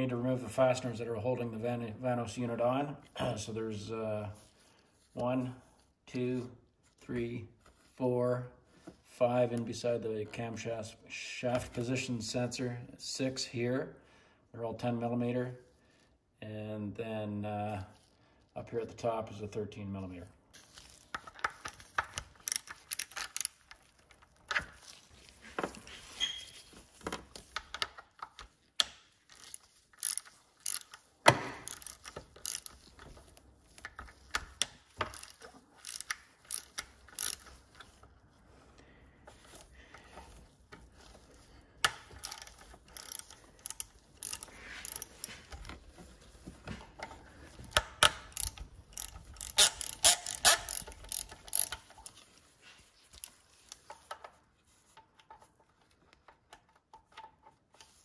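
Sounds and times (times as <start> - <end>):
ratchet wrench clicking: 21.5 - 23.8, 27.7 - 33.1, 33.7 - 37.9, 41.8 - 45.7, 47.7 - 52.2.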